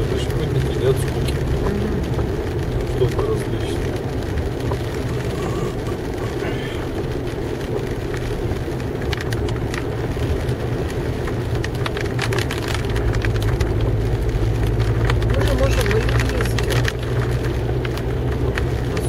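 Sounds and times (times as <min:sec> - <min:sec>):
car engine and tyre rumble: 0:00.0 - 0:19.0
wet road hiss: 0:04.8 - 0:11.5.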